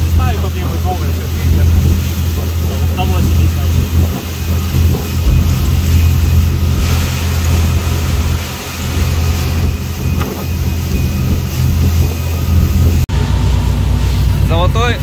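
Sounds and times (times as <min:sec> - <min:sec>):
motorboat engine droning: 0:00.0 - 0:15.0
wind and water rushing: 0:00.0 - 0:15.0.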